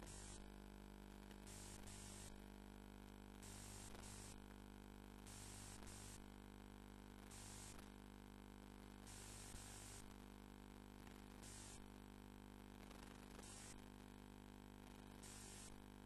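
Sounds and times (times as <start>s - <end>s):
static hiss: 0.0s - 0.5s, 1.4s - 2.4s, 3.4s - 4.4s, 5.3s - 6.3s, 7.2s - 7.9s, 9.0s - 10.2s, 11.0s - 11.9s, 12.8s - 13.9s, 14.9s - 15.8s
low electrical hum: 0.0s - 16.0s.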